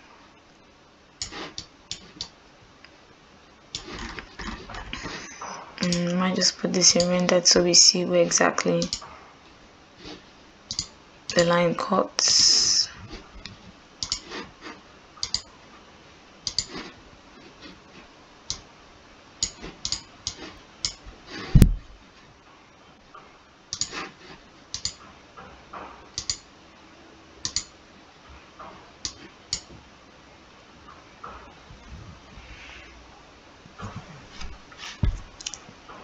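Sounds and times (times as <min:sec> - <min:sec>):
computer mouse clicks: 0:01.2 - 0:02.4, 0:08.8 - 0:09.1, 0:10.7 - 0:11.4, 0:13.4 - 0:14.3, 0:15.2 - 0:15.5, 0:16.4 - 0:16.8, 0:19.4 - 0:21.0, 0:23.7 - 0:24.0, 0:24.7 - 0:25.0, 0:26.2 - 0:26.4, 0:27.4 - 0:27.7, 0:29.0 - 0:29.7, 0:35.4 - 0:35.6
deep thump: 0:21.6 - 0:22.0, 0:33.8 - 0:35.3.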